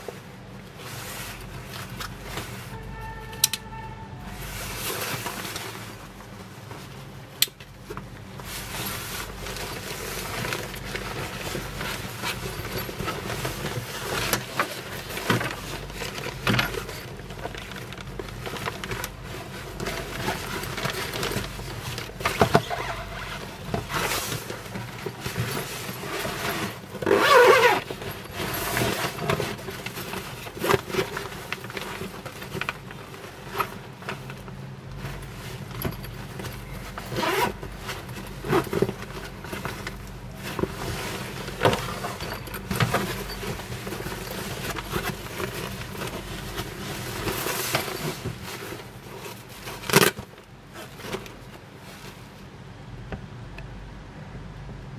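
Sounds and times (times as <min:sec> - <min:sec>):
fabric rustling and scraping: 0:00.0 - 0:52.7
fabric rasping: 0:22.6 - 0:32.3.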